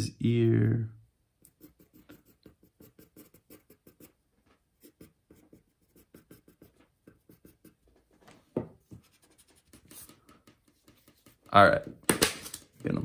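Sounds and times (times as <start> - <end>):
pencil sketching on paper: 1.5 - 4.2, 4.8 - 8.0, 8.8 - 11.5.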